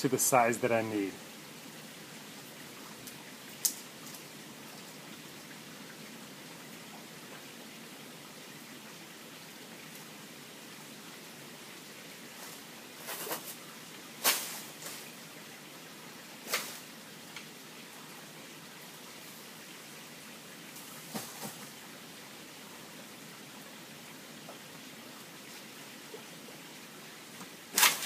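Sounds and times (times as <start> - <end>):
rain hissing: 0.0 - 28.0
blade chopping palm frond: 27.7 - 28.0.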